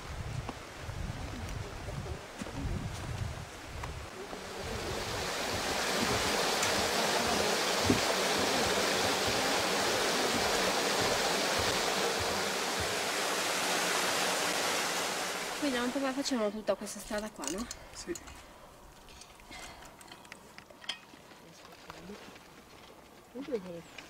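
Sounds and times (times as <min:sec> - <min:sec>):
mountain stream rushing: 0:00.0 - 0:16.7.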